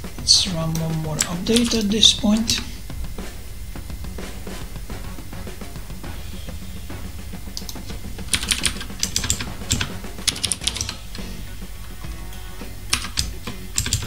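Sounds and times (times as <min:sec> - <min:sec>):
background music: 0:00.0 - 0:14.0
computer keyboard typing: 0:00.8 - 0:02.7, 0:07.6 - 0:11.0, 0:12.9 - 0:14.0.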